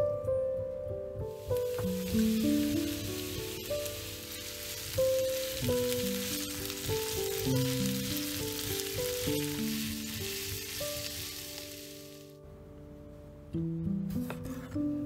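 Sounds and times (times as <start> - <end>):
gentle plucked melody: 0.0 - 11.8
vegetables sizzling in frying pan: 1.4 - 12.3
wooden spatula turning food: 1.4 - 12.3.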